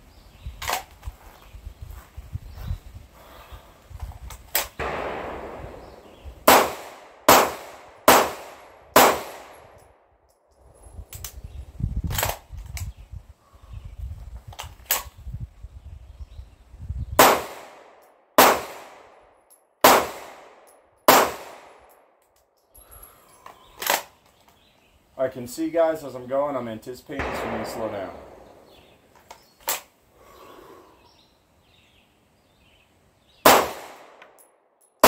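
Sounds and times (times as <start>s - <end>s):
faint gunshot cracks: 4.8s - 9.6s, 27.2s - 29.0s
pistol shots with echo: 4.8s - 9.8s, 17.2s - 19.2s, 19.8s - 22.0s, 27.2s - 29.0s, 33.4s - 34.2s.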